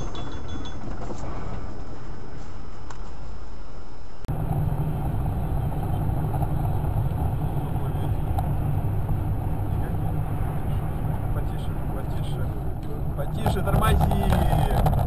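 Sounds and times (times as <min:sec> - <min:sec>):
car road and engine noise: 0:00.0 - 0:15.0
car rumbling on wet highway: 0:04.3 - 0:15.0.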